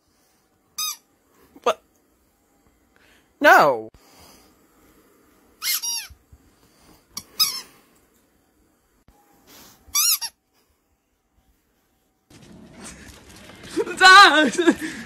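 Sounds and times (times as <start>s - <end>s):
squeaky toy squeaking: 5.6s - 6.2s, 9.9s - 10.4s.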